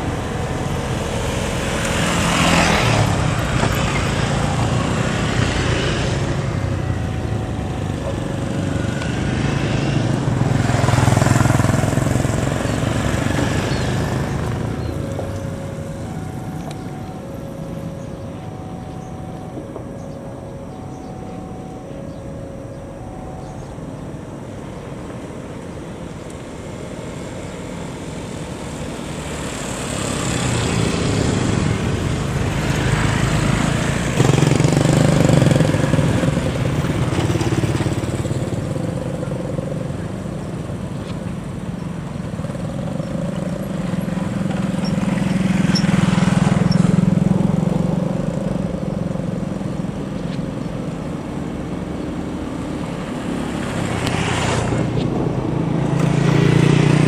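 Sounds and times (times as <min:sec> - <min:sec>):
diesel locomotive engine rumble: 0:00.0 - 0:29.4
traffic engine noise: 0:00.0 - 0:57.0.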